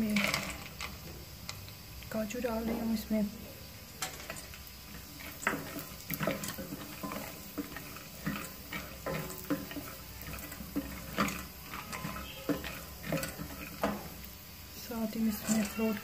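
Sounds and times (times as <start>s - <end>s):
nuts rattling: 0.0s - 1.0s, 3.9s - 16.0s
wooden spatula scraping steel pot: 4.0s - 16.0s.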